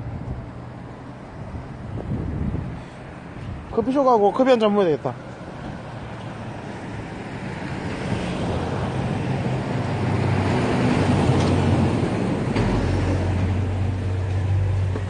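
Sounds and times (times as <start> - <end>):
engine humming and rumbling: 0.0 - 4.0, 4.9 - 15.0
thump: 12.5 - 13.6.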